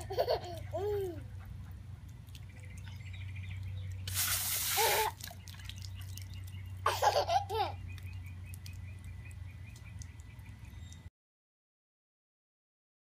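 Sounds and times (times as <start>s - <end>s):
water spraying from a hose: 4.0s - 7.2s.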